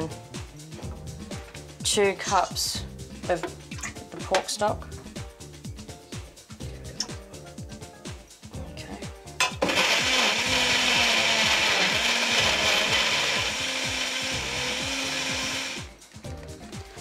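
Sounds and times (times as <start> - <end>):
electric blender running: 9.6 - 15.9.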